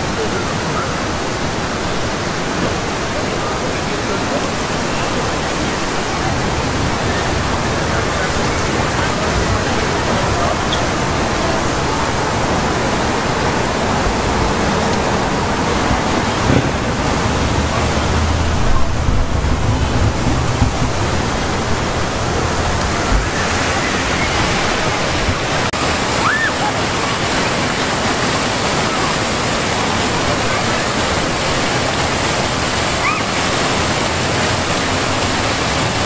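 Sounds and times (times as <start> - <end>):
fountain water splashing: 0.0 - 36.0
passing traffic drone: 4.1 - 25.8.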